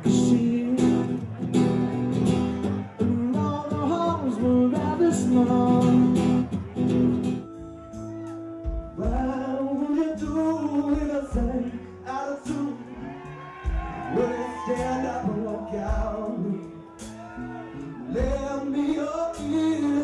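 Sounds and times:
man singing into microphone: 0.0s - 1.4s, 2.8s - 6.5s, 8.9s - 17.2s, 18.0s - 20.0s
electric guitar: 0.0s - 20.0s.

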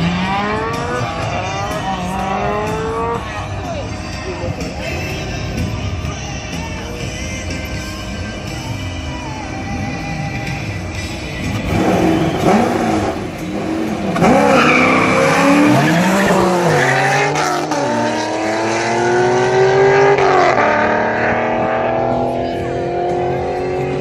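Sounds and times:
car engines revving: 0.0s - 24.0s
tyre squeal: 14.2s - 17.0s.

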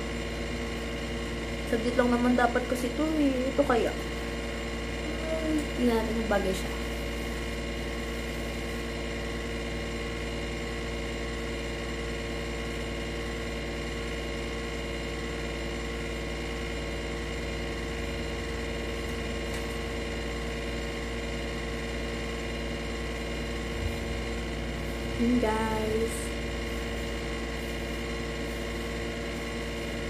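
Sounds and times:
appliance humming: 0.0s - 30.0s.

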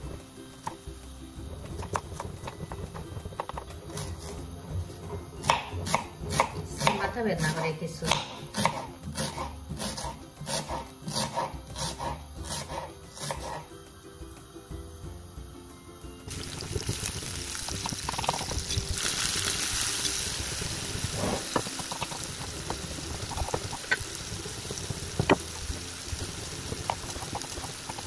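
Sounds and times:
knife chopping on wooden board: 5.4s - 13.6s.

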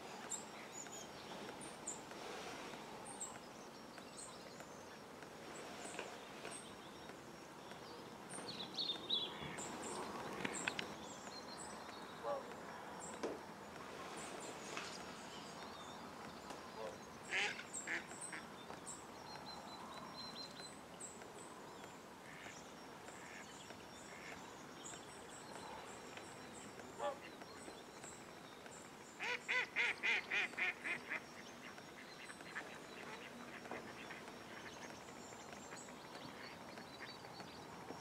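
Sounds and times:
faint distant bird calls: 0.0s - 38.0s
waterfowl calling: 12.2s - 12.6s.

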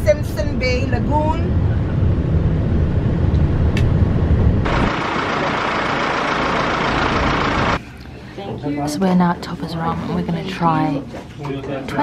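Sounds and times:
vehicle rumble from inside: 0.0s - 7.8s.

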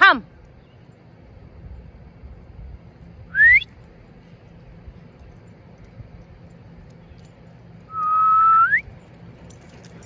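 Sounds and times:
person whistling dog recall: 3.3s - 3.7s, 7.9s - 8.9s.

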